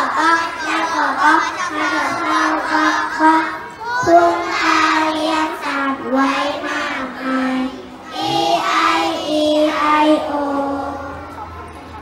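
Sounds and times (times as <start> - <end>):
young children singing: 0.0 - 11.6.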